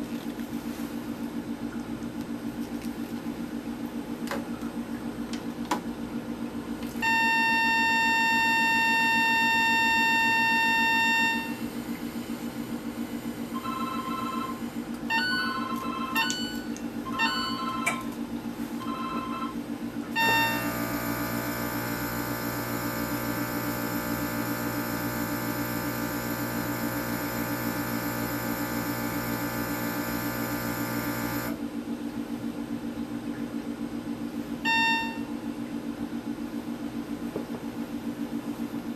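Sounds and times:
steady low hum: 0.0s - 38.9s
steady buzzing hum: 1.1s - 38.7s
loud steady tone: 7.0s - 18.2s, 18.8s - 31.6s, 34.6s - 35.5s
short beeps changing pitch: 34.7s - 35.3s.

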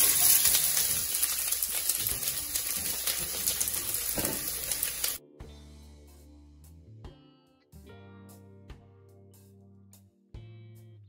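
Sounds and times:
onions sizzling in oil: 0.0s - 5.2s.

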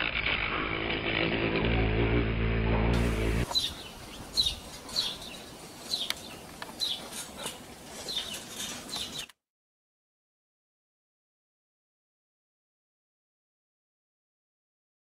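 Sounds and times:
slowed bee buzz drone: 0.3s - 3.5s.

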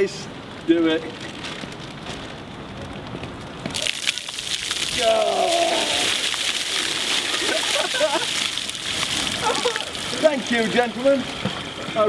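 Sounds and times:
water splashing onto stone steps: 3.3s - 12.0s
person crying out: 4.9s - 6.3s, 9.4s - 10.0s.

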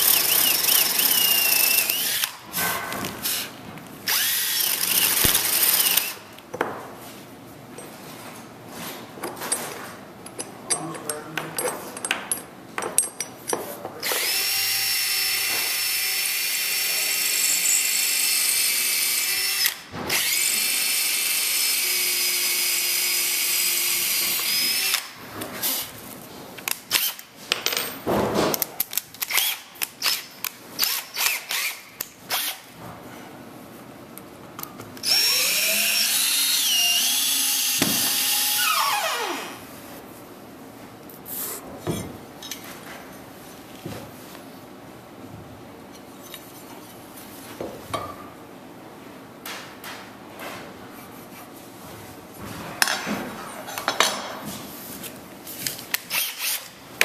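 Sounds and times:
cordless drill running: 0.0s - 2.4s, 4.1s - 6.2s, 14.1s - 21.4s, 35.0s - 39.5s.

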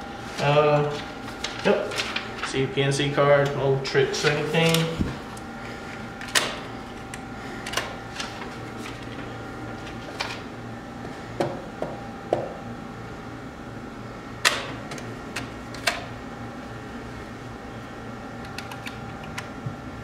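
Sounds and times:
steady hum: 0.0s - 20.0s
card reader clicking and clunking: 6.2s - 8.4s, 14.4s - 16.1s.

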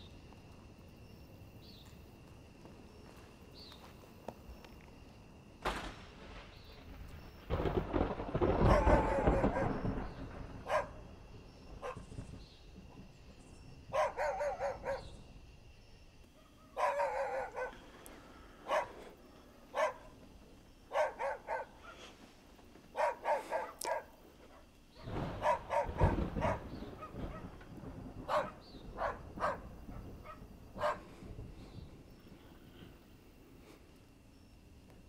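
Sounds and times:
dog barking: 8.6s - 9.8s, 10.6s - 11.0s, 11.8s - 12.0s, 13.9s - 15.2s, 16.4s - 17.9s, 18.6s - 19.1s, 19.7s - 20.2s, 20.9s - 22.1s, 22.9s - 27.6s, 28.2s - 31.1s.

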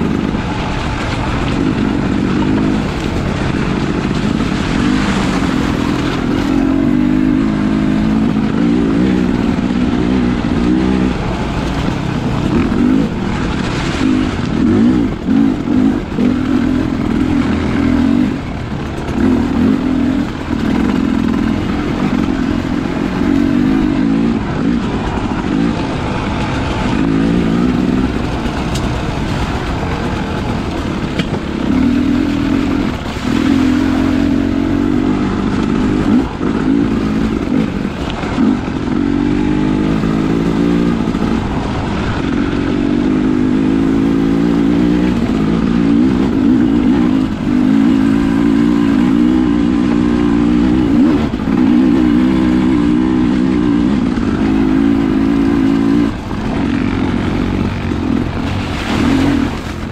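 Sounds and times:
dirt bike engine revving: 0.0s - 59.9s
steady low rumble: 0.0s - 59.9s.

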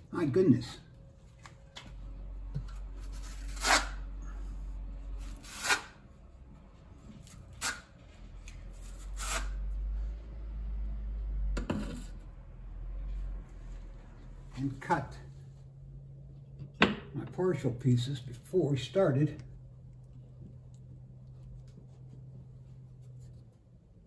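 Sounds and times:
trowel scraping tile mastic: 5.2s - 6.0s, 7.3s - 7.9s, 8.7s - 9.6s.

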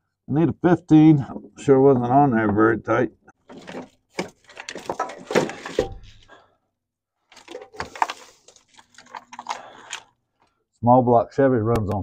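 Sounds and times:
wrench clinking and scraping metal: 3.5s - 6.3s, 7.3s - 10.1s.

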